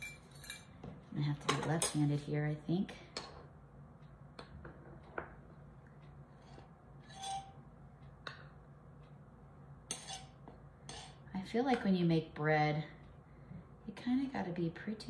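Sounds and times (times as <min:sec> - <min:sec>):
knife scraping flour: 0:06.4 - 0:07.5.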